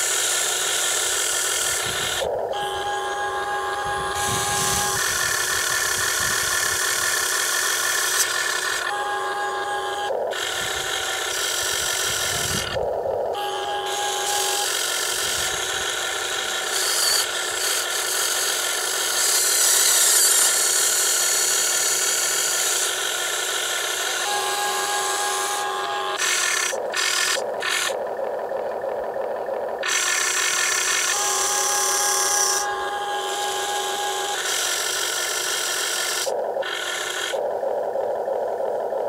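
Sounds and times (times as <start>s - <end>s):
toy excavator motors whining: 0.0s - 39.0s.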